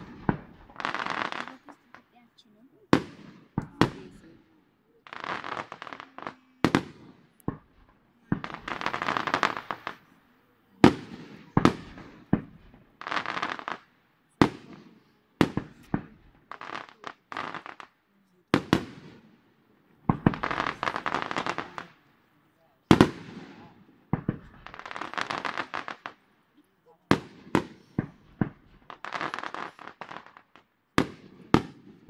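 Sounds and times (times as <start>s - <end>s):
firework shells bursting: 0.0s - 2.1s, 5.1s - 10.1s
firework crackle: 0.0s - 2.2s, 2.9s - 26.4s, 27.1s - 32.0s.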